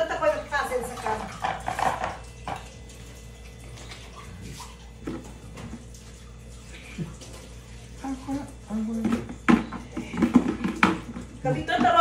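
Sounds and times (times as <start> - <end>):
water running from tap: 0.0 - 12.0
dishes knocking and clattering: 1.1 - 2.7, 9.0 - 12.0.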